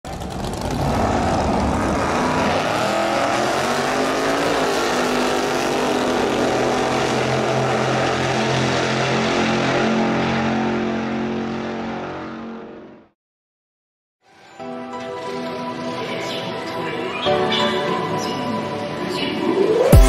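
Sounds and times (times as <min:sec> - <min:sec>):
car engine revving: 0:00.1 - 0:13.1.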